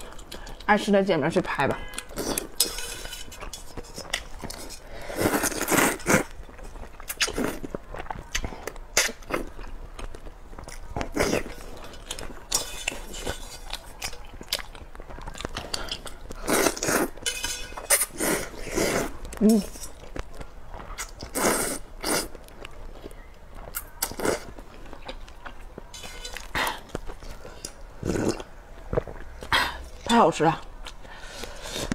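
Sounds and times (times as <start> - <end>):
person chewing: 0.0 - 0.7, 1.7 - 30.1, 30.7 - 31.9
person slurping noodles: 4.5 - 6.3, 18.0 - 19.1, 21.3 - 22.3, 28.0 - 28.4.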